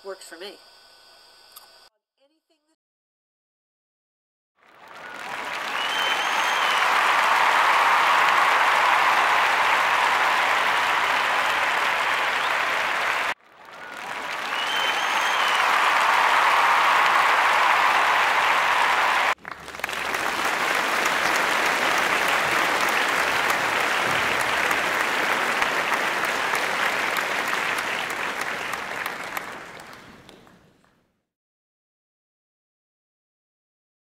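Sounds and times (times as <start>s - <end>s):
crowd applause: 4.6s - 31.0s.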